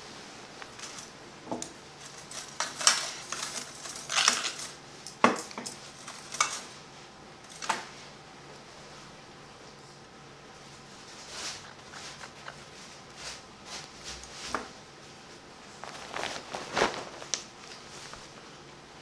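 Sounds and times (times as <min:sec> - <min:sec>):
drapes rustling: 0:10.7 - 0:18.9.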